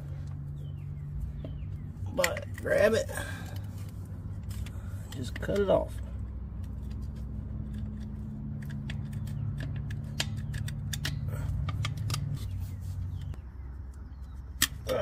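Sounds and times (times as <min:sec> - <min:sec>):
steady low hum: 0:00.0 - 0:15.0
knife scraping rubber and metal: 0:03.7 - 0:13.4.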